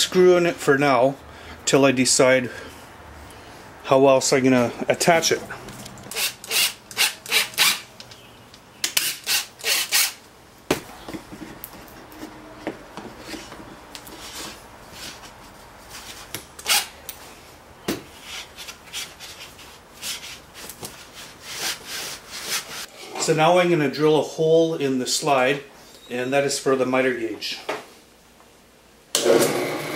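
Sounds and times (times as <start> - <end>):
plywood scraping and rubbing: 18.1 - 23.3.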